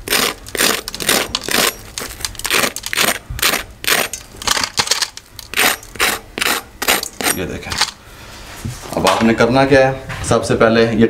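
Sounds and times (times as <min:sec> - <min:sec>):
fork scraping crispy crust: 0:00.0 - 0:04.4, 0:05.4 - 0:07.5.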